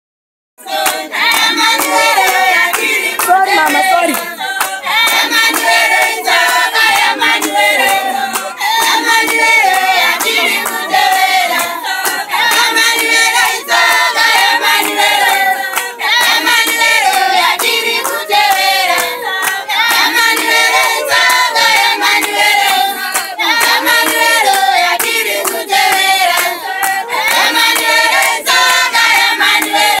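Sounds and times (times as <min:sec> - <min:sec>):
hands clapping: 0:00.6 - 0:30.0
women singing a hymn: 0:00.6 - 0:30.0.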